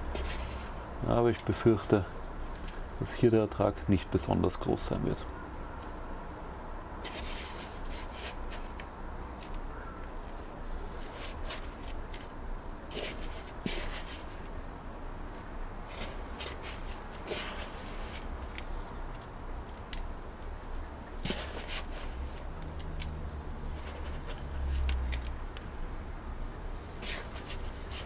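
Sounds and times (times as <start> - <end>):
hand rummaging through soil: 0.0 - 2.7, 7.0 - 8.8, 10.9 - 14.5, 15.8 - 18.7, 21.2 - 23.1, 23.7 - 25.3, 27.0 - 28.0.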